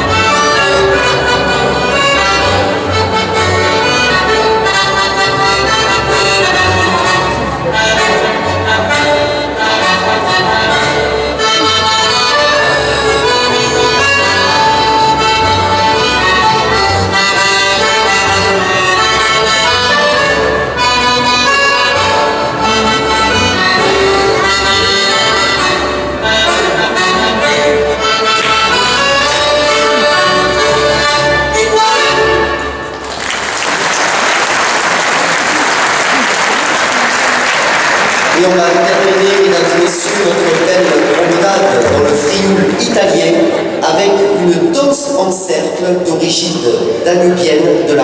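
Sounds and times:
double bass pulse: 0.0 - 33.2
accordion: 0.0 - 48.0.

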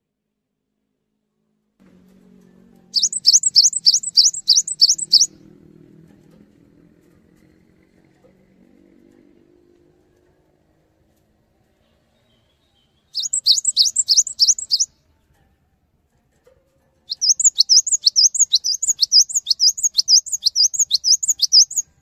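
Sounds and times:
bird singing high whistled notes: 3.0 - 5.4, 12.2 - 14.9, 17.1 - 22.0.

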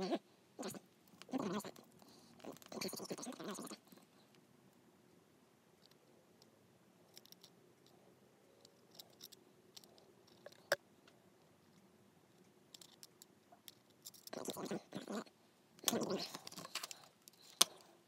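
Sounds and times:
clicks of small parts handled: 7.1 - 8.0, 8.6 - 10.8, 11.6 - 14.5, 15.8 - 17.9.

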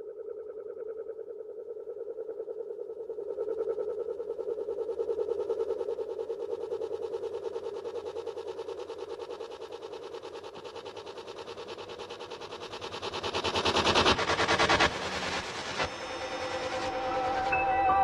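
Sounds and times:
pulsing drone music: 12.7 - 18.0.

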